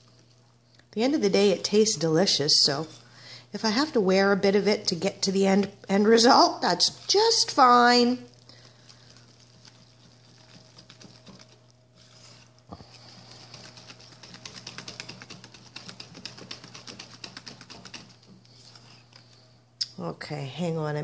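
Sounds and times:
whisk clicking against glass bowl: 13.5s - 18.2s.

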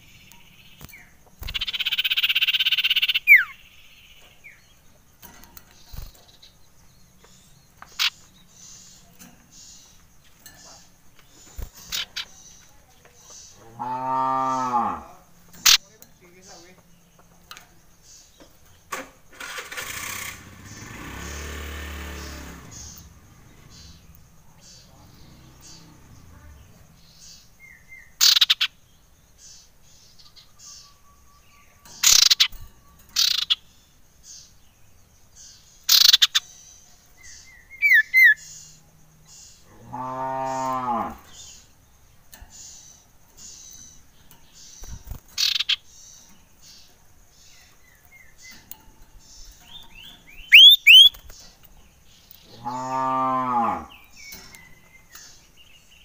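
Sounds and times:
low moo-like calls: 13.6s - 15.2s, 39.7s - 41.3s, 52.4s - 54.1s
bird calling sharp notes: 50.4s - 51.2s
bird falling whistles: 50.5s - 51.1s.

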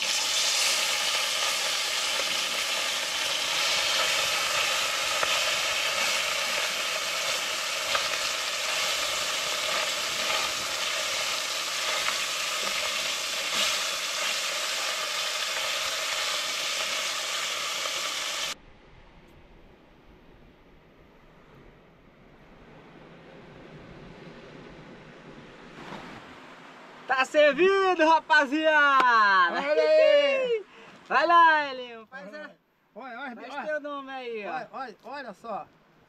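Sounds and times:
fish frying in hot oil: 0.0s - 18.6s.

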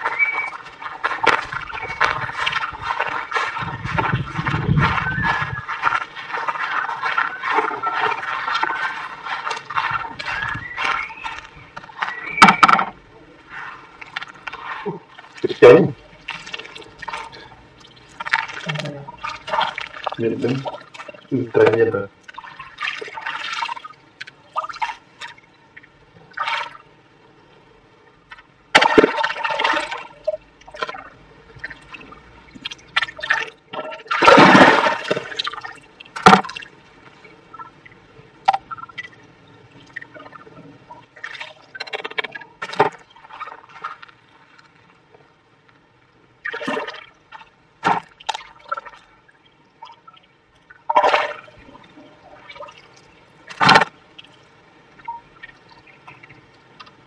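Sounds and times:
hand splashing water and wet sand: 0.0s - 12.4s, 13.5s - 25.4s, 28.8s - 31.0s, 32.6s - 36.7s, 42.6s - 44.7s.

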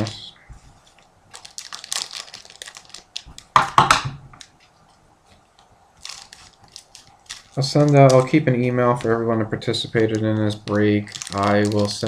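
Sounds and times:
foil wrapper crinkling: 0.9s - 3.6s, 5.5s - 12.0s.

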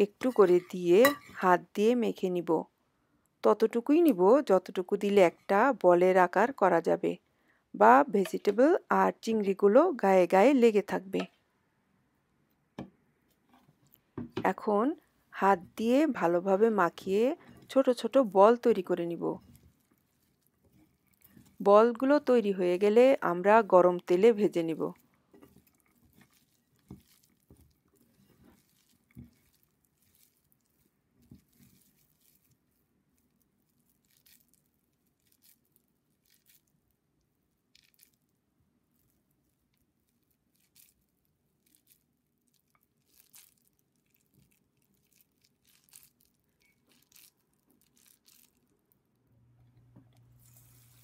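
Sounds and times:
wet mixture squelching: 19.4s - 21.7s, 24.5s - 48.9s.

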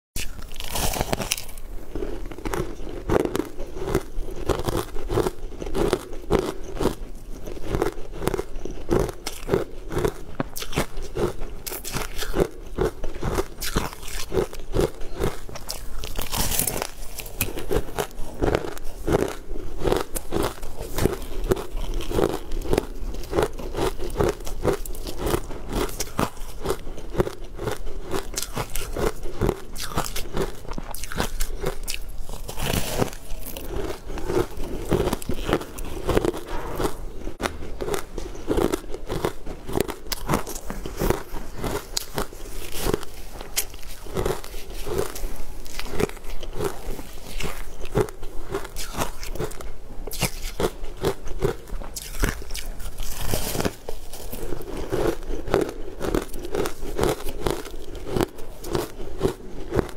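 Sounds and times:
chewing crunchy ice: 0.2s - 59.9s.

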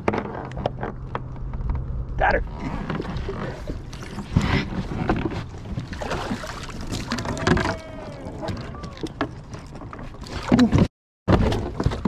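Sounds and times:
knocks and scrapes on plastic hull: 2.6s - 6.3s, 6.9s - 12.0s
water splashing: 2.9s - 10.8s.

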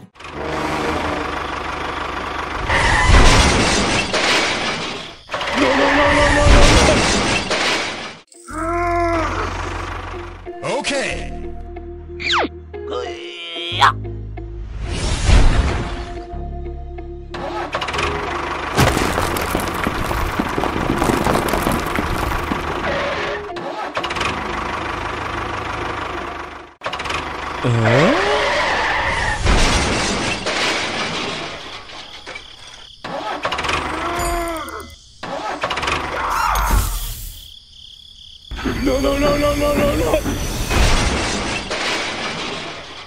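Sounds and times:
vehicle engine sound effect: 0.2s - 3.1s
background music: 9.1s - 14.9s, 15.7s - 18.8s.

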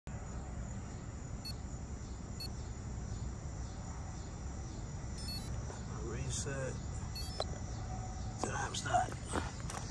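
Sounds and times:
short electronic beeps: 5.2s - 5.5s, 7.2s - 7.5s.

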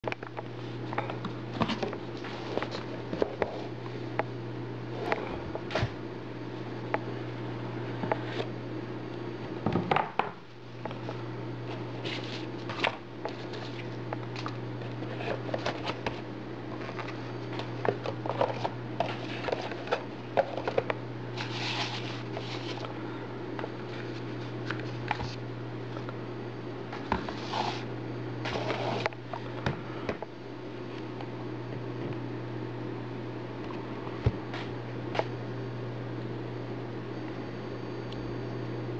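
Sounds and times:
cardboard box rustling: 11.7s - 22.8s.

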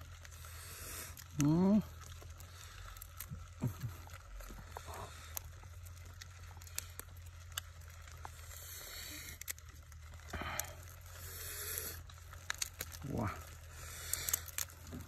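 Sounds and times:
beetle shells crackling: 0.0s - 15.0s.

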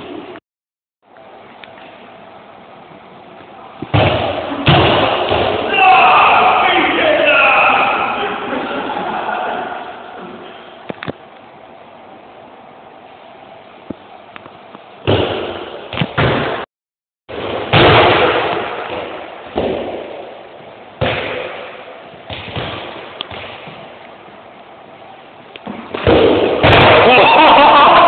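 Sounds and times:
loud echoing bangs: 3.9s - 8.6s, 17.3s - 23.8s, 25.9s - 28.0s
people shouting: 5.6s - 8.5s.

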